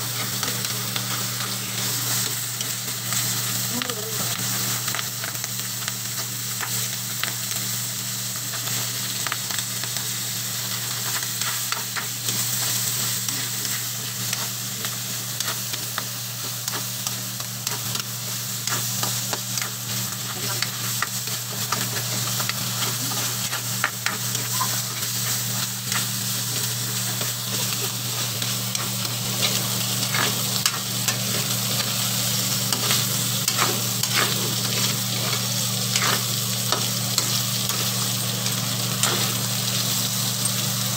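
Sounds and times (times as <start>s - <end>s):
meat sizzling in oil: 0.0s - 40.9s
spatula scraping a wok: 20.6s - 32.0s, 32.6s - 39.4s.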